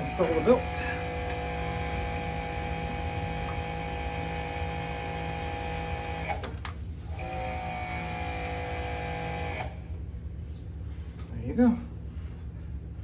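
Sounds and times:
pressure washer motor hum: 0.0 - 10.0.

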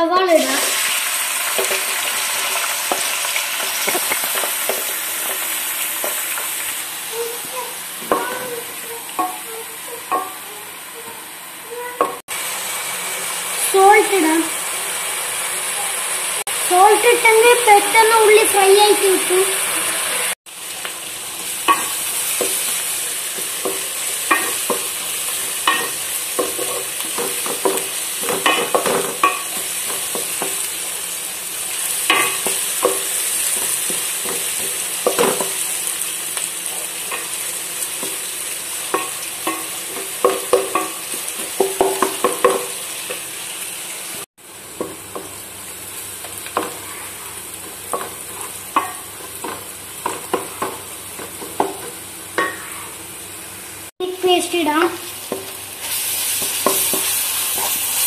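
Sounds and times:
onions sizzling in a pot: 0.0 - 58.0
wooden spoon scraping a pot: 46.6 - 51.8, 52.4 - 53.0.

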